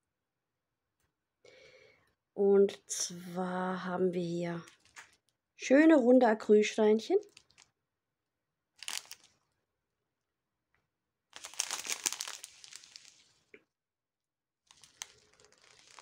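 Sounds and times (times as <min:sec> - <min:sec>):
plastic packaging crinkling: 0:04.7 - 0:05.2, 0:07.2 - 0:07.7, 0:08.8 - 0:09.4, 0:11.4 - 0:13.5, 0:14.7 - 0:16.0.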